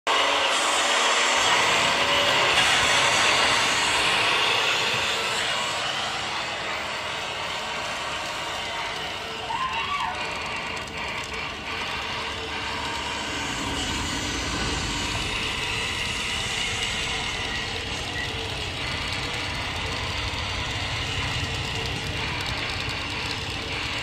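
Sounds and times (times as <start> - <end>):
toy truck wheels rolling on mat: 10.1 - 24.0.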